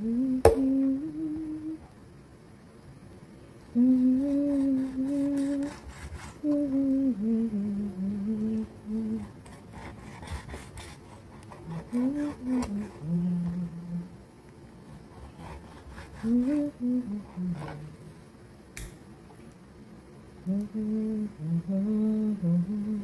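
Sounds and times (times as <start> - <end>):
person humming: 0.0 - 1.9, 3.7 - 9.4, 11.5 - 14.2, 15.4 - 18.1, 20.4 - 23.0.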